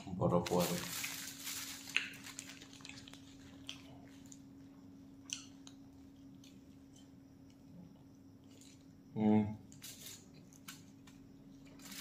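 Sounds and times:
steady low hum: 0.0s - 12.0s
plastic film crinkling: 0.2s - 4.4s, 11.8s - 12.0s
soft chewing: 1.9s - 8.9s.

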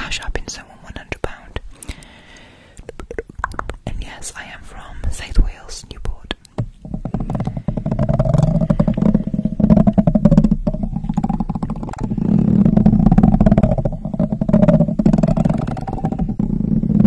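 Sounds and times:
buzzing low rumble: 6.7s - 17.0s.

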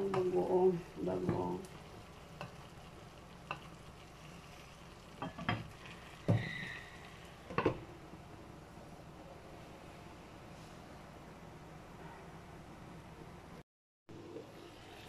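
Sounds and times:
food sizzling in a frying pan: 0.0s - 7.7s.

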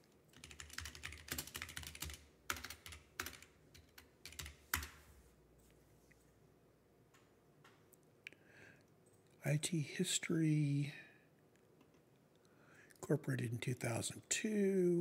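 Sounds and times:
typing on a keyboard: 0.3s - 5.0s.

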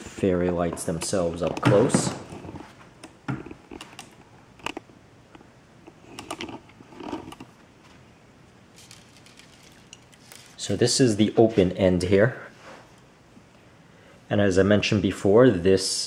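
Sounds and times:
light handling clicks and knocks: 0.6s - 7.5s.

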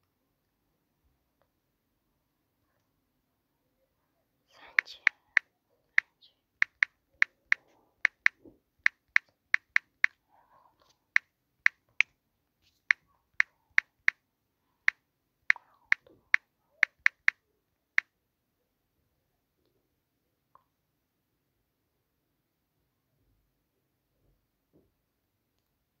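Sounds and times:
phone keyboard clicks: 6.6s - 10.2s, 15.5s - 17.4s.

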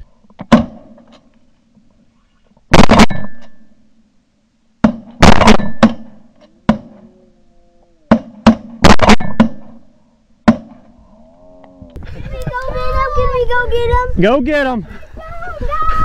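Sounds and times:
shotgun blasts: 0.5s - 1.0s, 2.7s - 3.6s, 4.8s - 7.1s, 8.1s - 10.8s.

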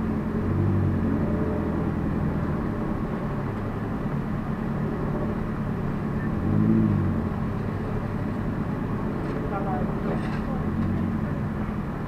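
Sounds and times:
car engine and rolling noise: 0.0s - 12.0s.

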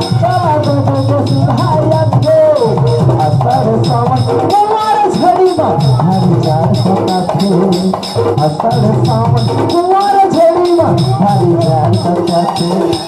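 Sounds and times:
bending melody line: 0.0s - 13.0s
low drum pattern: 0.0s - 13.0s
quick ticking beat: 0.0s - 13.0s.

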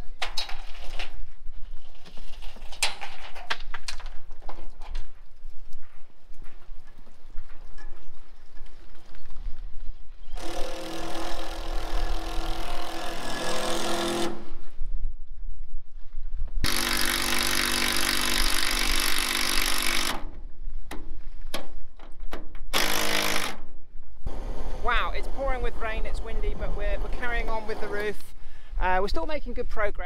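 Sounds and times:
cordless drill on steel sheet: 10.4s - 14.6s, 16.6s - 20.2s, 22.7s - 23.6s
wind rumble on microphone: 14.4s - 16.7s.

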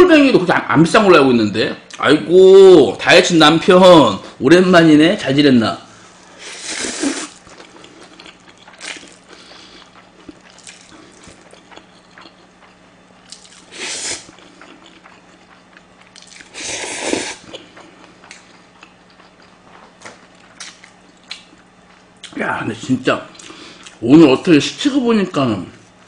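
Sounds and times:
wet chewing: 6.6s - 22.4s
noodles slurped: 16.2s - 17.7s.

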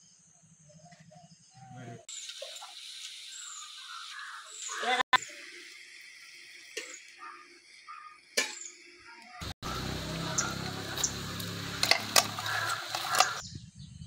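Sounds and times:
kitchen utensils clinking: 10.4s - 13.4s.

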